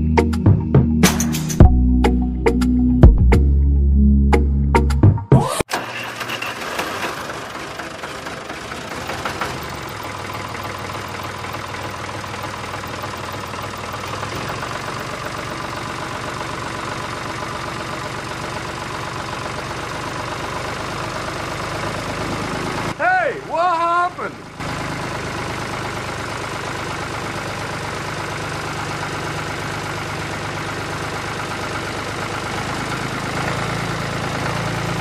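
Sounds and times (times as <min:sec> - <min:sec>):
music: 0:00.0 - 0:05.6
toy tractor motor knocking: 0:05.7 - 0:17.2.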